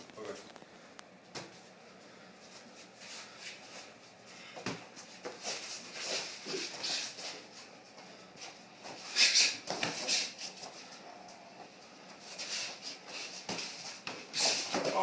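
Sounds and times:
short hissing breaths: 9.0 - 10.4.

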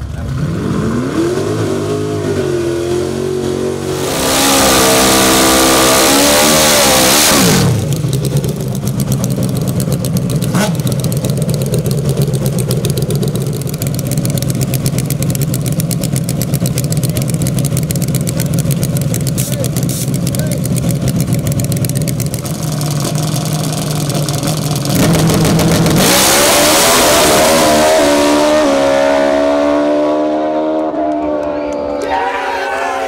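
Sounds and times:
motorcycle engine revving: 0.0 - 31.6
motorcycle engine idling: 7.7 - 25.9.

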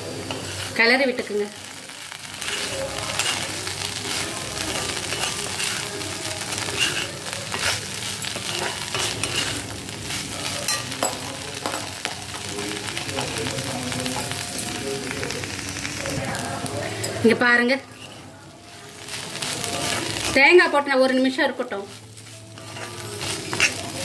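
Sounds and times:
vegetables sizzling in oil: 0.0 - 24.0
spatula scraping a pan: 2.3 - 11.2, 17.8 - 20.4, 21.2 - 24.0.

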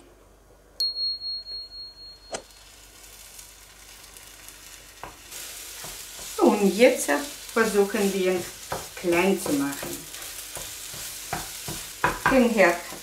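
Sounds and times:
high ringing chime: 0.8 - 2.6
eggs sizzling in pan: 2.4 - 13.0
spatula knocks: 10.6 - 13.0.

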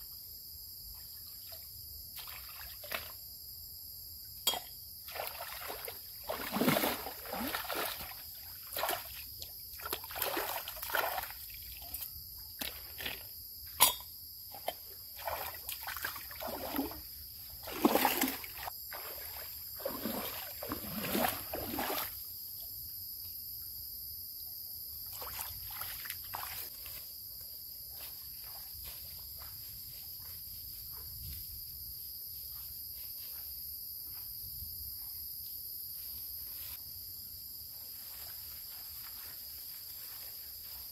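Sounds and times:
high insect drone: 0.0 - 40.9
water splashing and sloshing: 0.9 - 3.2, 4.5 - 13.3, 14.5 - 22.3, 25.0 - 27.0, 27.9 - 30.4.

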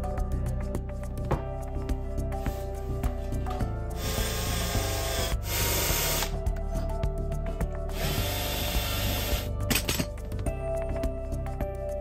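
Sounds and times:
background music: 0.0 - 12.0
cordless drill driving screws: 4.0 - 6.4, 8.0 - 9.5.

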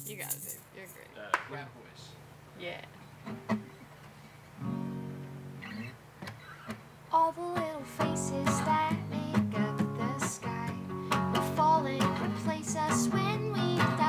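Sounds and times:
acoustic guitars playing: 3.0 - 14.0
person singing: 7.1 - 14.0.

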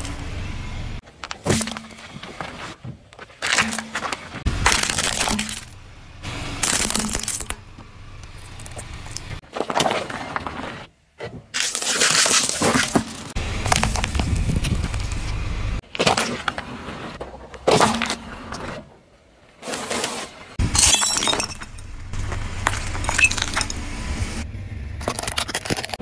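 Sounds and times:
tyre noise on road: 0.0 - 26.0
plastic crunching under tyre: 1.0 - 5.8, 6.5 - 10.9, 11.5 - 18.8, 20.7 - 23.9.

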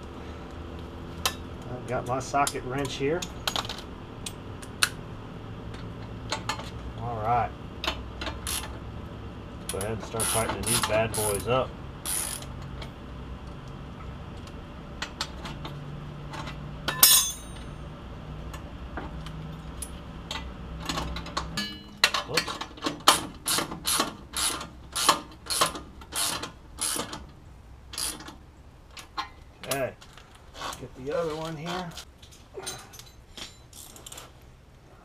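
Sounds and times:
ratchet wrench clicking: 8.4 - 8.7, 9.7 - 12.5, 23.5 - 27.1, 28.0 - 28.3.

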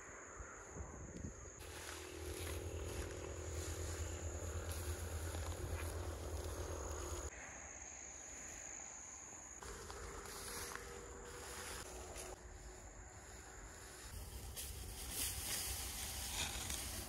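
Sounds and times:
crickets trilling: 0.0 - 17.0
low mechanical hum: 1.6 - 7.3.

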